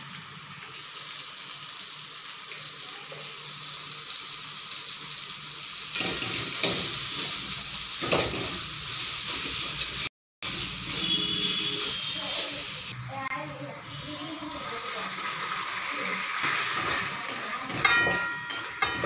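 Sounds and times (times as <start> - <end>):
onion and tomato sizzling in wok: 0.0 - 19.0
metal spatula scraping wok: 16.3 - 19.0.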